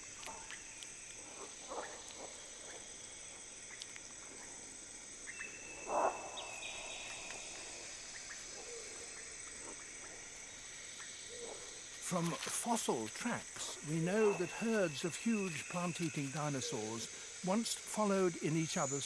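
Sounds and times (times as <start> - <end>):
high-pitched insect drone: 0.0 - 19.0
faint clicks: 3.7 - 4.2.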